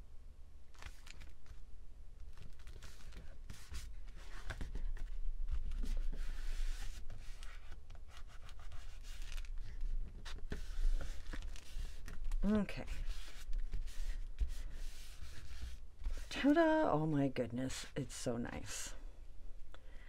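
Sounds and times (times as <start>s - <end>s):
palms rubbing over paper: 2.4s - 16.5s.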